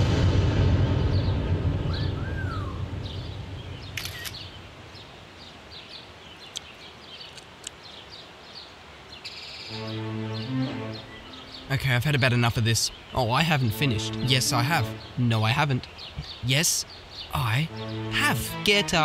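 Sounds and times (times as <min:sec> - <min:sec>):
drum-heavy music: 0:00.0 - 0:03.2
brief rushing noise: 0:00.0 - 0:04.6
small birds chirping: 0:01.0 - 0:19.0.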